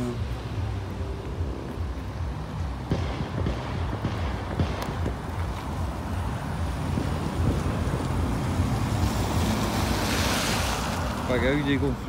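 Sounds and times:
tyres hissing on wet road: 5.2 - 12.0.

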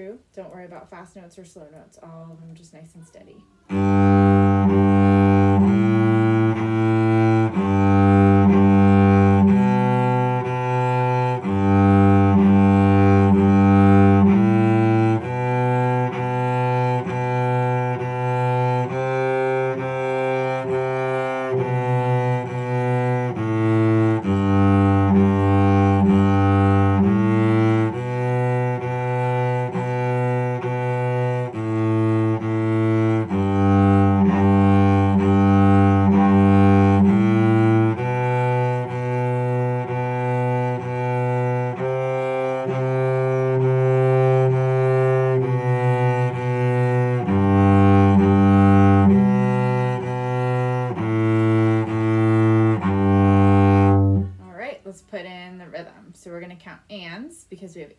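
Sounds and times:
cello bowed melody: 3.6 - 54.8.

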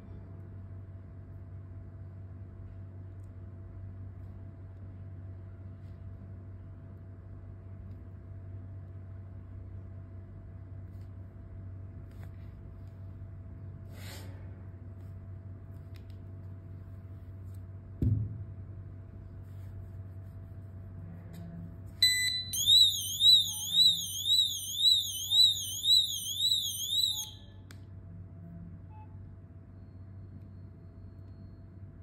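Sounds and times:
knock: 18.0 - 18.4
short beep: 22.0 - 27.5
warbling alarm siren: 22.0 - 27.6.

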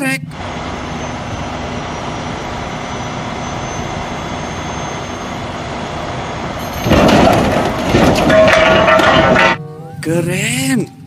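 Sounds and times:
heavy trucks running: 0.0 - 11.0
loud clattering noise: 6.6 - 9.6.

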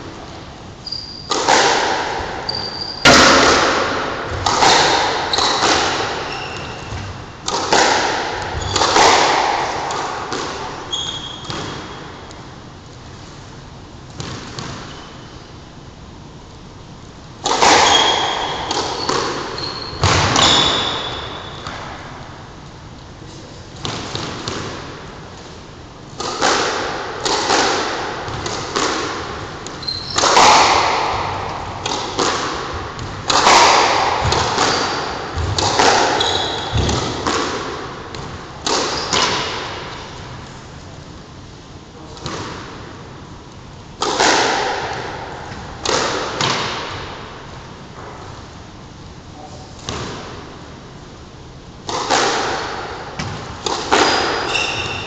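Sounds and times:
squash ball hits ringing in court: 0.9 - 12.4, 17.4 - 22.2, 26.2 - 40.2, 44.0 - 47.4, 51.8 - 55.0.

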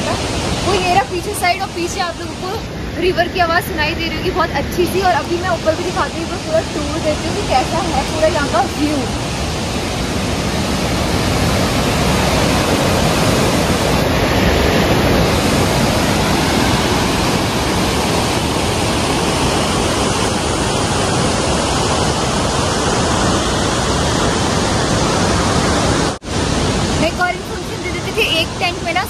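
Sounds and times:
river rushing over boulders: 0.0 - 29.0.

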